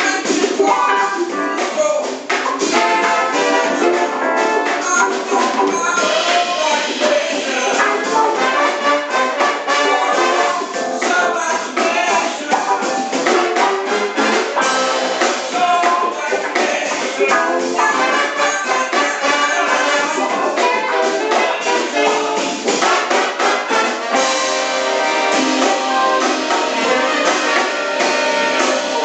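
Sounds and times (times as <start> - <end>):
big band horns playing: 0.0 - 29.0
drum kit: 0.0 - 29.0.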